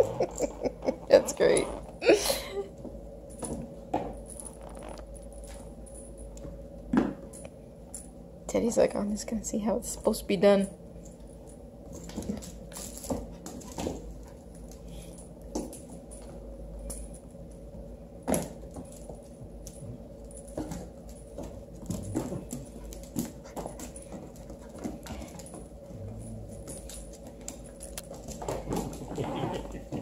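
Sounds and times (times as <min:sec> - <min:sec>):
paws clicking and scuffling on floor: 0:11.0 - 0:30.0.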